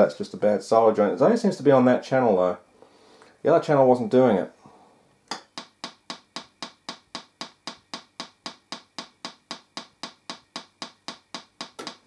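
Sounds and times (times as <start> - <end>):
speaker popping: 5.6 - 12.0.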